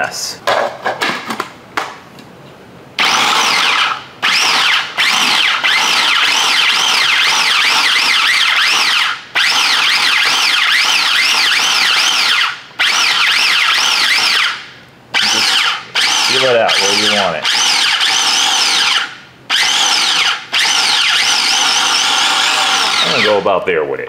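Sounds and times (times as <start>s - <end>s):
food processor motor whining: 3.0s - 23.5s.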